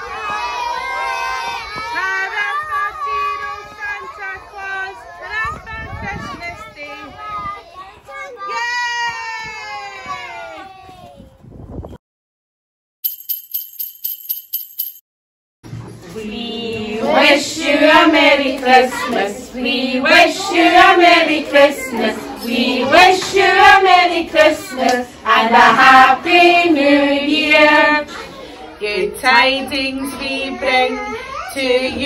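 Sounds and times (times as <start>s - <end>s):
jingle bells shaken: 13.0s - 15.0s.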